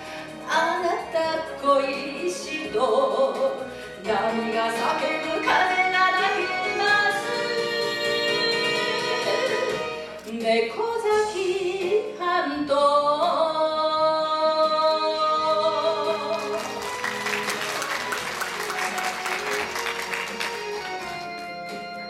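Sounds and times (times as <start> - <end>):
instrumental backing music: 0.0 - 22.0
woman singing into a microphone: 0.5 - 16.7
audience applauding: 16.2 - 21.4.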